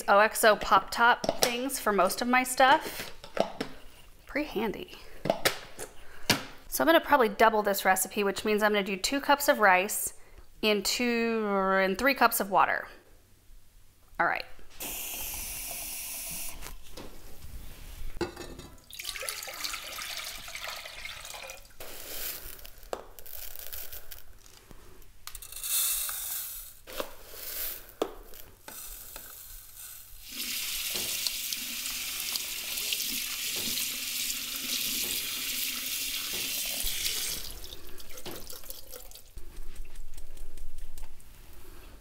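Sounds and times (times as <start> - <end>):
tap water splashing into sink: 30.8 - 39.2.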